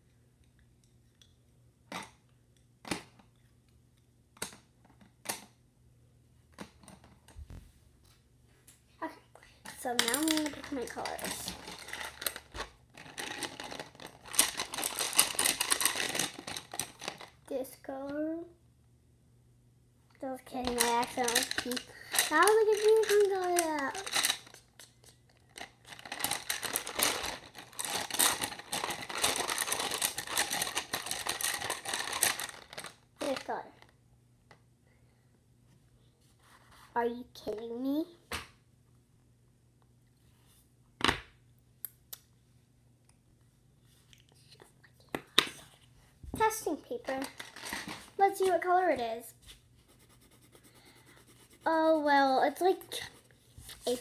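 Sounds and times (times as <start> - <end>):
pencils clicking and knocking: 9.6 - 17.4, 20.6 - 33.5.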